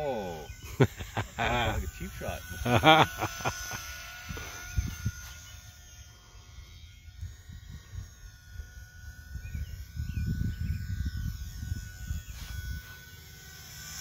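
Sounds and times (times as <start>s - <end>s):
wind buffeting microphone: 7.2s - 12.8s.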